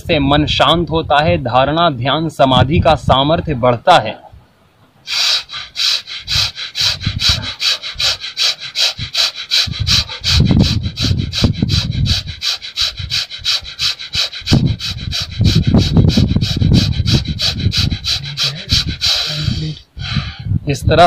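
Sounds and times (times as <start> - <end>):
rapid forceful nose breathing: 5.0 - 20.6.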